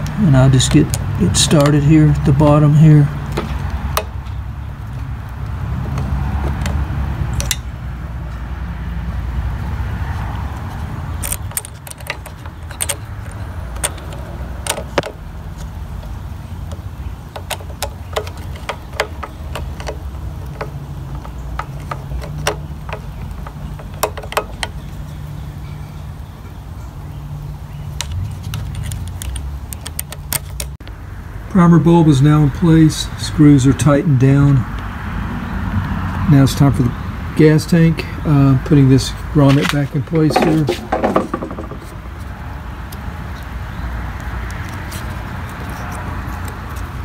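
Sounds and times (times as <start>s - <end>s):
screwdriver clicks and scrapes: 11.2s - 15.8s, 28.0s - 30.8s.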